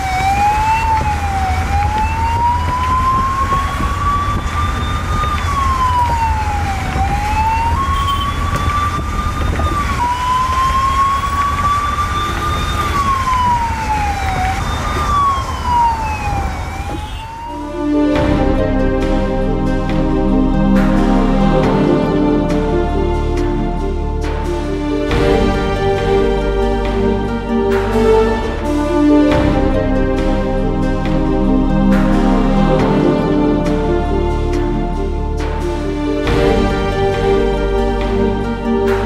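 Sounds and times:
vehicle engine rumble: 0.0 - 21.8
emergency siren wailing: 0.0 - 39.0
road noise: 0.0 - 39.0.

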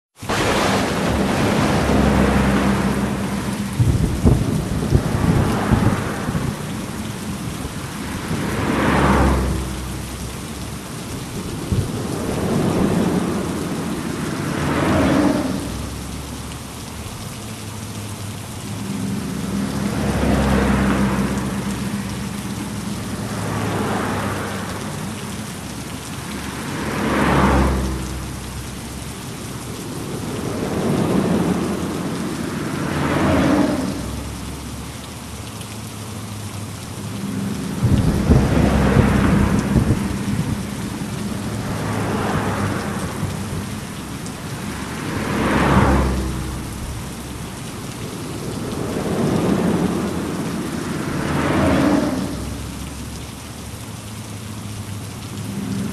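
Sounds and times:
heavy rain: 0.1 - 55.9
low rolling thunder: 0.2 - 7.1, 11.2 - 15.9, 29.5 - 34.3, 37.4 - 43.7.

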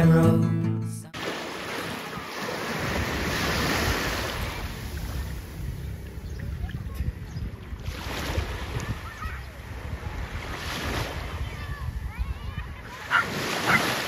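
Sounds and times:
small waves washing on sand: 1.2 - 7.0, 7.6 - 14.0
wind buffeting microphone: 2.7 - 13.8.

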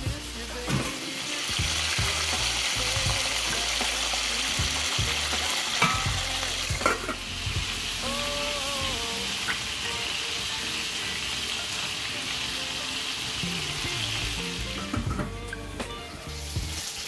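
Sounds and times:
chicken sizzling in a pot: 0.0 - 17.0
steel lid clinking on pot: 5.8 - 6.2, 6.8 - 7.2.

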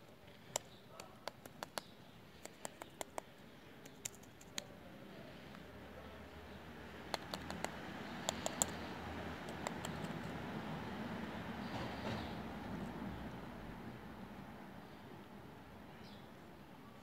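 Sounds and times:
twig tapping on dry ground: 0.5 - 3.3, 7.1 - 8.8.

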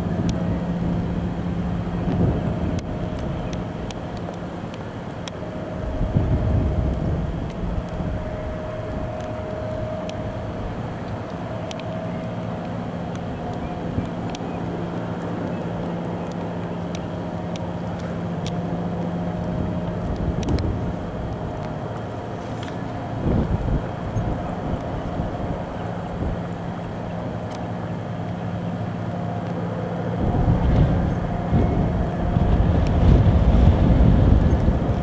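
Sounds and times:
low rumble: 0.0 - 27.8, 29.1 - 35.0
engine drone: 0.0 - 35.0
wind-like noise: 0.0 - 35.0
faint clicks: 11.0 - 14.6, 15.2 - 18.6, 19.4 - 20.7.

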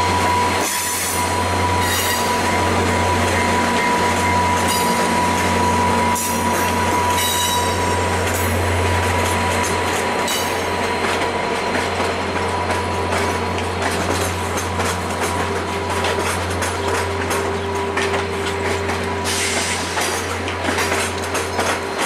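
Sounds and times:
low train hum: 0.0 - 22.0
train wheels clicking over track: 0.1 - 22.0
high wheel squeals: 0.2 - 8.0.

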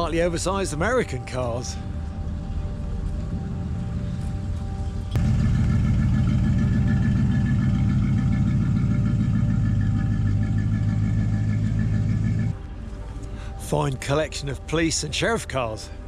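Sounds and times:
car engine idling: 4.2 - 12.7.

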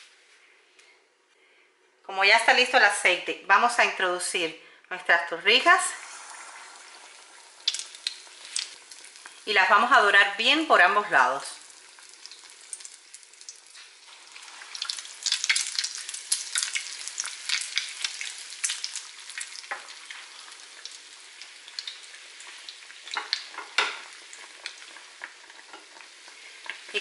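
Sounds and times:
bread deep-frying in oil: 5.6 - 27.0.

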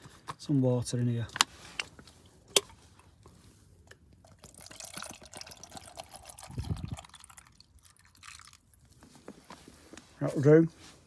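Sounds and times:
water pouring into metal pot: 4.3 - 8.7.

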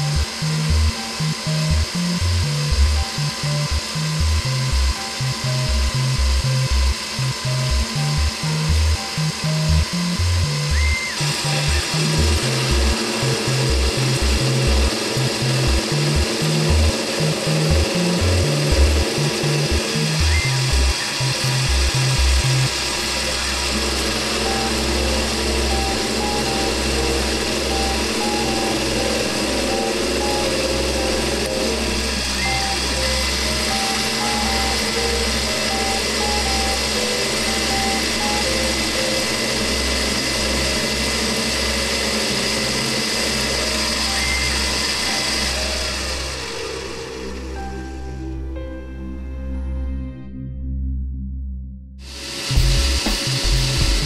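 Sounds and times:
music with rhythmic bass line: 0.0 - 39.0, 50.3 - 54.0
lathe cutting metal: 0.0 - 47.7, 52.0 - 54.0.

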